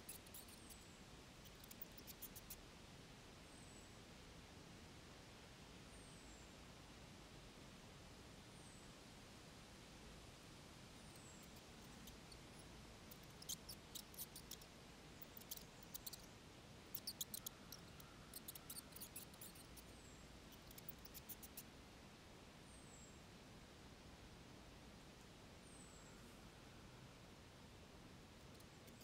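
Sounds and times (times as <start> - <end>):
mice squeaking: 0.0 - 0.8, 1.4 - 2.6, 11.4 - 16.3, 16.9 - 19.9, 20.5 - 21.7, 28.5 - 29.0.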